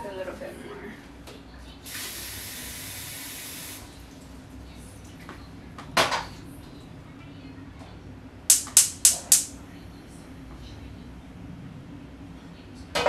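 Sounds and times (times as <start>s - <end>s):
gas igniter clicking: 8.5s - 9.5s.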